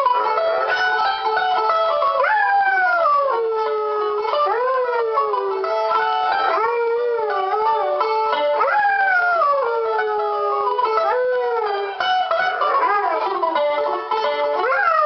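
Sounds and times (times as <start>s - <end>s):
plucked mandolin: 0.0s - 15.0s
dog howling: 0.1s - 15.0s.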